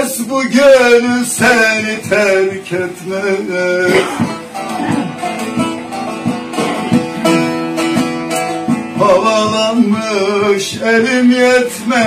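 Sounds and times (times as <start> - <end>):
man singing: 0.0 - 4.9, 8.9 - 12.0
plucked long-necked lute: 0.0 - 12.0.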